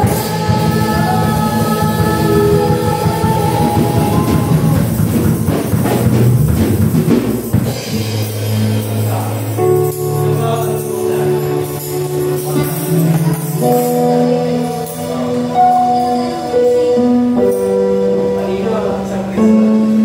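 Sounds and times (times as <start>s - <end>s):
person singing: 0.0s - 5.4s
drum kit: 0.0s - 18.0s
band sustained chords: 0.0s - 20.0s.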